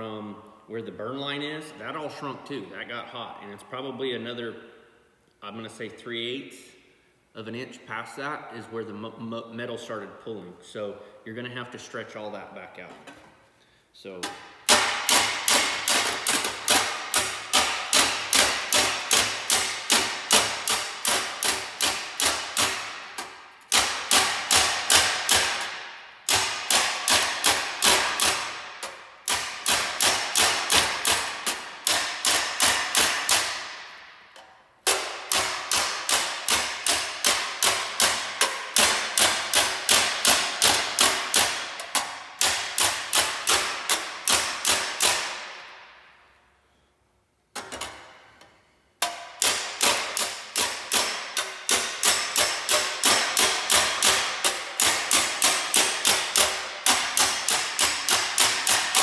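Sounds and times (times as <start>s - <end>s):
hammer tapping sheet metal: 14.2s - 46.4s, 47.6s - 59.0s.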